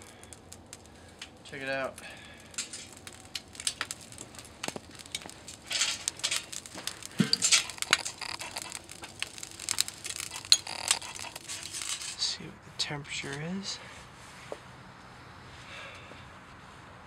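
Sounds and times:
charcoal clattering into metal drum: 1.7s - 12.2s.

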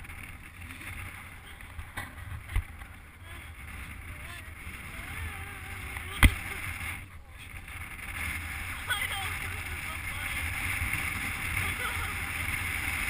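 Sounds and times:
road noise: 0.0s - 13.0s
wind rumbling on microphone: 0.0s - 13.0s.

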